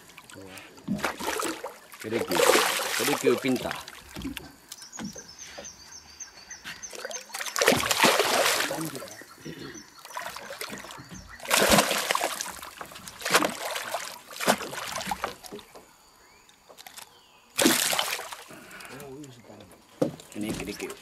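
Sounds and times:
fish splashing at surface: 0.0s - 4.5s, 7.0s - 9.2s, 10.1s - 15.6s, 17.6s - 18.6s.

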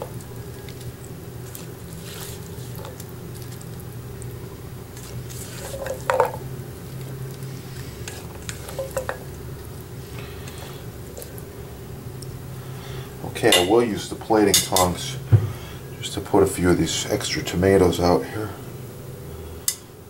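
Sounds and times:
spatula squishing salad on plate: 0.0s - 4.3s, 4.9s - 6.4s
steady low hum: 0.0s - 20.0s.

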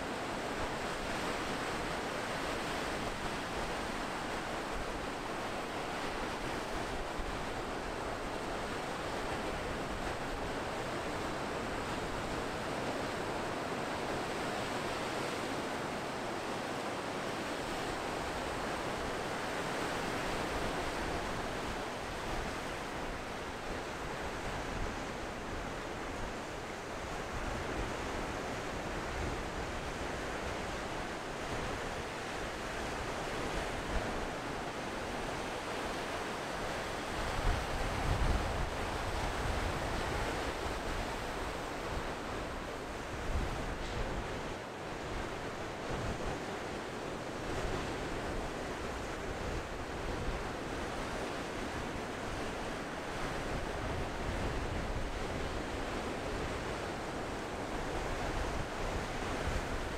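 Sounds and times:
ocean surf breaking on sand: 0.0s - 59.9s.

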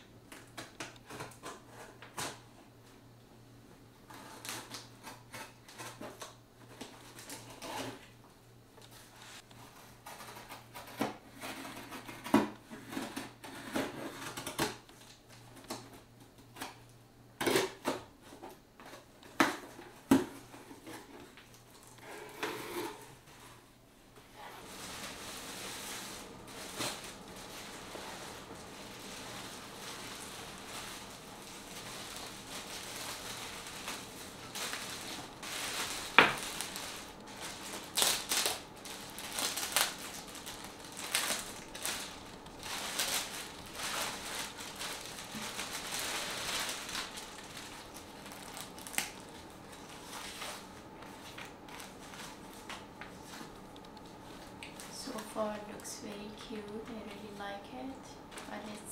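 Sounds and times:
plastic bag and tissue paper rustling: 4.0s - 8.2s, 22.8s - 58.9s.

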